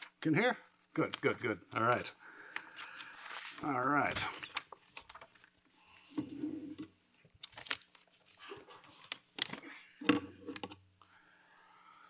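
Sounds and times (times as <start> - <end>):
paper rustling and tapping: 4.2 - 5.5, 7.4 - 8.1, 8.9 - 9.7.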